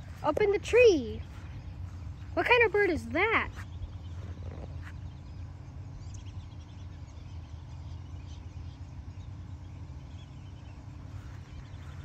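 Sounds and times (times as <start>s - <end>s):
low background rumble: 0.0s - 12.0s
songbirds chirping: 0.0s - 12.0s.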